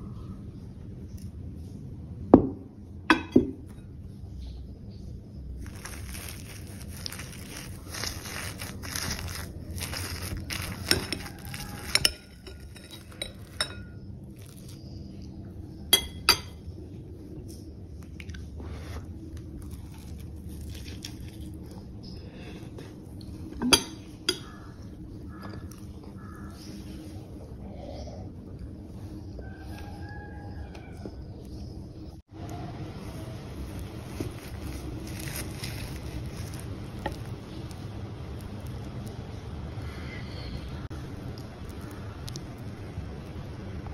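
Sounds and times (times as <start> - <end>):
cutlery scraping a ceramic plate: 10.5 - 13.9.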